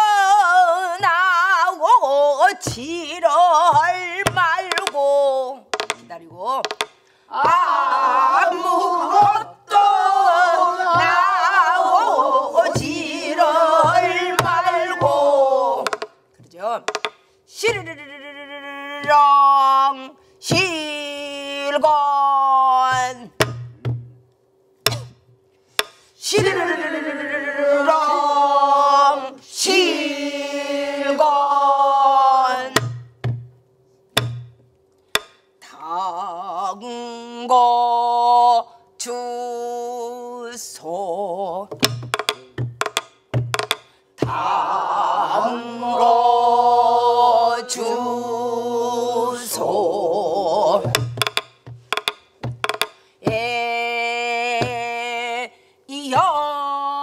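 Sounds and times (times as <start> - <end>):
woman singing with vibrato: 0.0 - 5.7, 7.3 - 16.0, 17.5 - 23.4, 26.2 - 32.9, 35.6 - 41.8, 44.2 - 51.0, 53.2 - 57.0
barrel drum strokes: 5.8 - 16.1.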